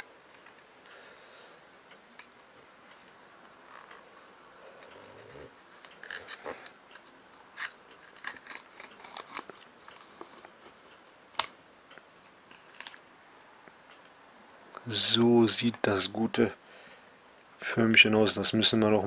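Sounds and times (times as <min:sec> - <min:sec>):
foil crinkling: 0:07.6 - 0:10.2.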